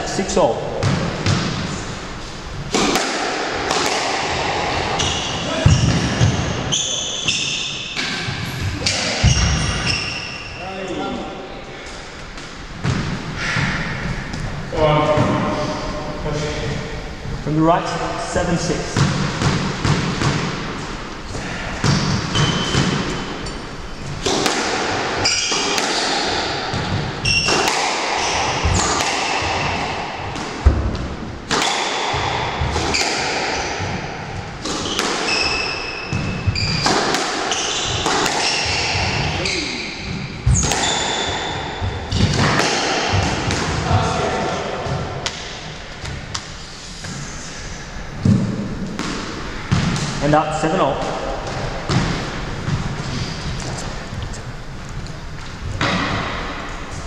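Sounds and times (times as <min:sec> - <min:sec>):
squash ball striking rackets: 0:00.7 - 0:01.7, 0:02.6 - 0:10.2, 0:12.3 - 0:14.5, 0:18.9 - 0:20.9, 0:21.8 - 0:46.6, 0:48.1 - 0:53.8, 0:55.4 - 0:56.8
shoes squeaking on wooden floor: 0:34.6 - 0:42.3.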